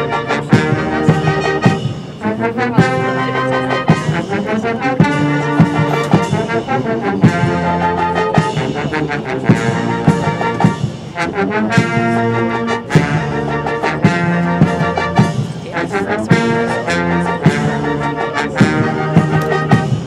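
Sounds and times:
military brass band march: 0.0s - 20.0s
steady drum beat: 0.0s - 20.0s.

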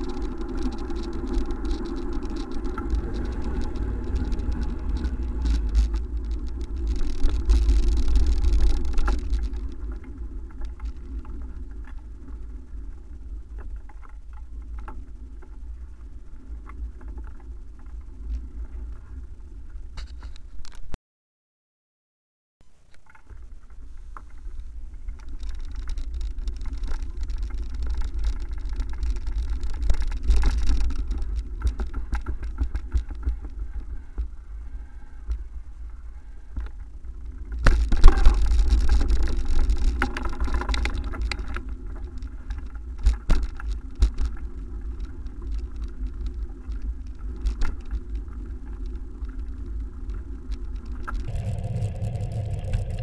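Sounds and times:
wind buffeting microphone: 0.0s - 13.5s, 51.2s - 53.0s
bicycle rattling: 0.0s - 18.5s, 23.0s - 34.3s, 36.8s - 53.0s.

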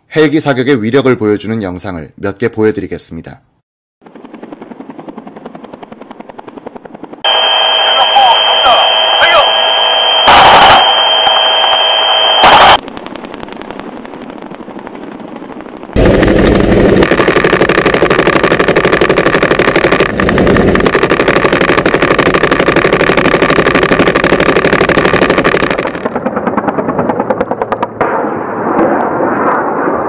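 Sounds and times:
helicopter rotor and engine: 4.0s - 28.0s.

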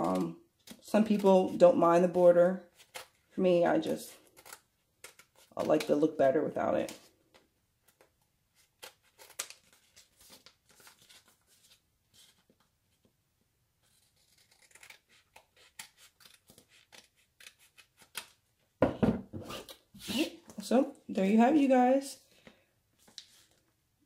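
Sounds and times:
scissors snipping paper: 0.0s - 1.5s, 4.2s - 6.1s, 8.6s - 11.2s, 13.8s - 18.4s.

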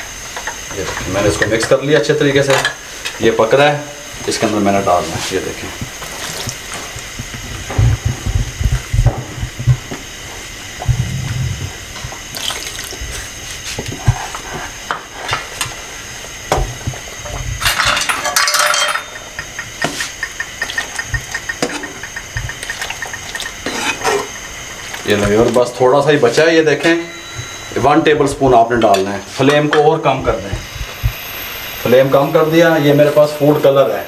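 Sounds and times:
spatula knocking against pan: 19.2s - 23.5s
spatula scraping a wok: 22.9s - 24.9s.

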